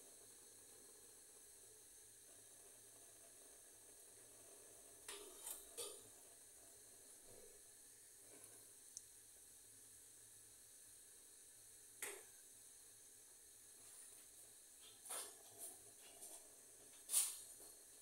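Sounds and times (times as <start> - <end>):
faint steady gas hiss: 0.0 - 18.0
gas burner catching with puffs: 5.1 - 6.0
faint ticks: 8.3 - 9.2.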